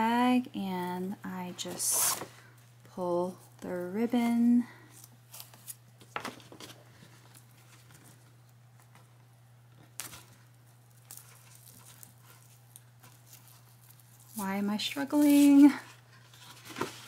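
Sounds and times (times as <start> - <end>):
ribbon and paper bag rustling: 10.9 - 17.0.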